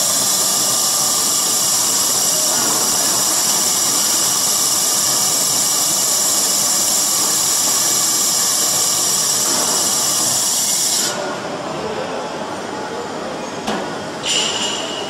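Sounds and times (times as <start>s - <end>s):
extruder machine hissing: 0.0s - 11.4s.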